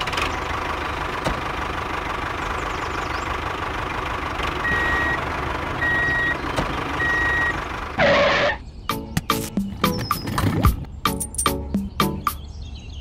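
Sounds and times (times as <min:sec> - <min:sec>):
tractor engine idling: 0:00.0 - 0:08.6
reversing alarm beeps: 0:04.6 - 0:05.2, 0:05.8 - 0:06.4, 0:07.0 - 0:07.6.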